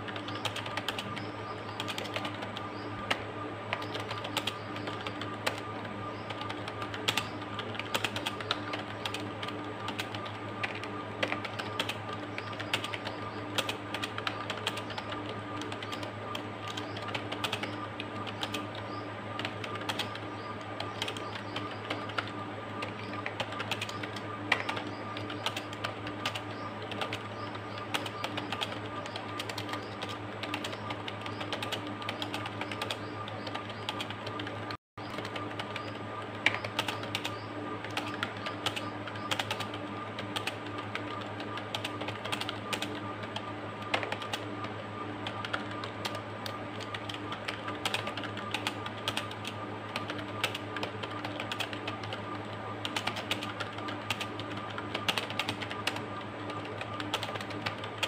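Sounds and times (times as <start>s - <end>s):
fast typing on keyboard: 0.0s - 58.0s
steady hum: 0.0s - 58.0s.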